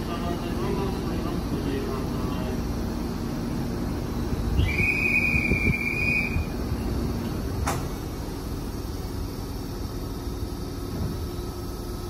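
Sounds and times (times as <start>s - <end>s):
electric train humming: 0.0s - 12.0s
whistle blast: 4.6s - 6.6s.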